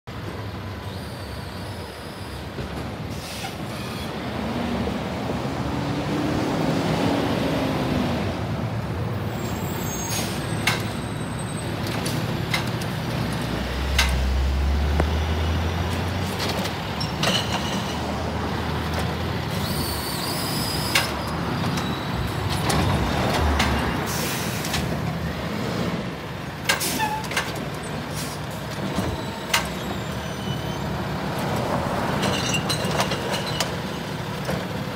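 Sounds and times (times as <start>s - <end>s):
air brake hisses: 3.1s - 4.0s, 24.1s - 24.8s.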